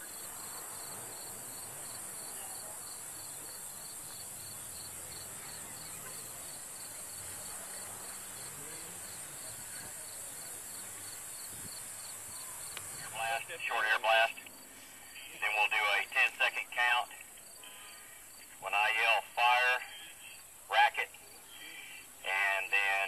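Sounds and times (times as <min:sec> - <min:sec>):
insect chirping: 0:00.0 - 0:13.1.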